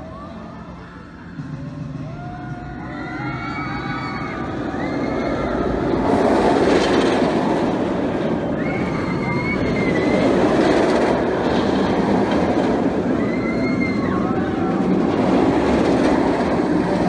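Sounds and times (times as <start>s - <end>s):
roller coaster rumbling on track: 0.0s - 17.0s
high squeal: 8.5s - 10.7s.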